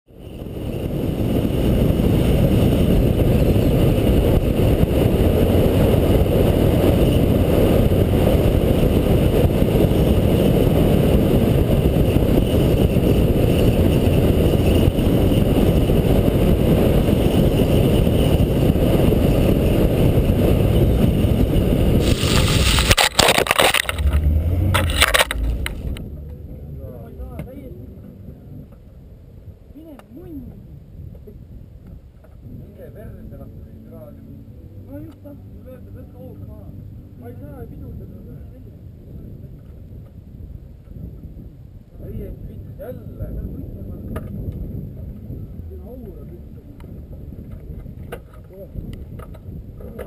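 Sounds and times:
rally car engine drone: 0.2 - 29.5, 32.2 - 50.0
car crash crunching and scraping: 22.0 - 26.0.

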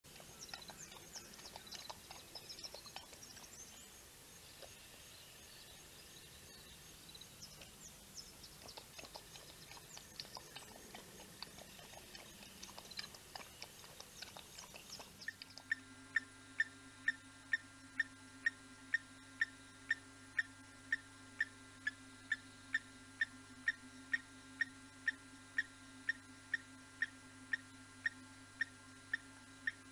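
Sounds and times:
even ticking: 0.1 - 3.8, 7.4 - 15.8
small birds chirping: 0.1 - 18.1
low steady hum: 0.1 - 29.9.

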